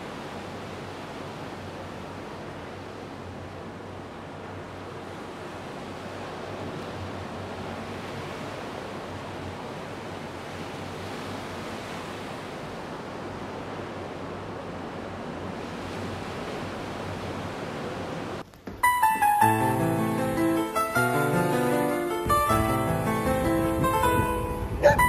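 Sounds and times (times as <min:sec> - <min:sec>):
ocean surf on rocky shore: 0:00.0 - 0:25.0
keyboard music with piano notes: 0:18.8 - 0:25.0.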